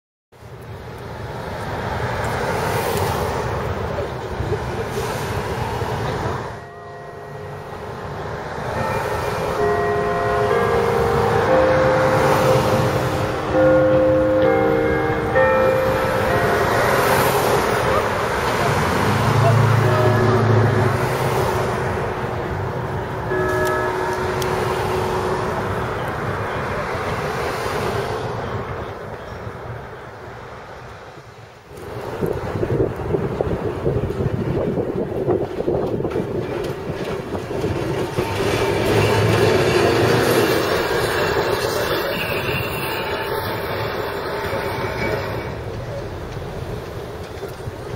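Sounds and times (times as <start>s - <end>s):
street traffic noise: 0.3s - 47.9s
steady tones: 6.5s - 28.0s
car driving past: 16.0s - 22.4s.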